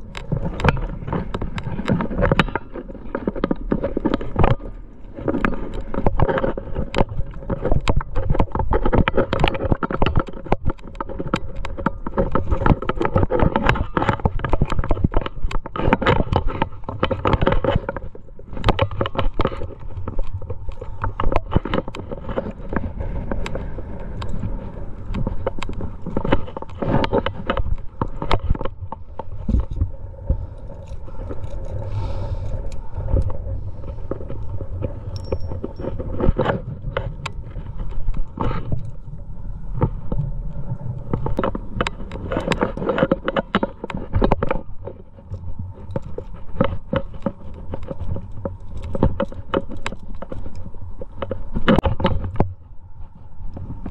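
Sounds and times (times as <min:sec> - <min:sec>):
climbing gear clinking: 0:00.0 - 0:39.0
wind on microphone: 0:00.0 - 0:53.9.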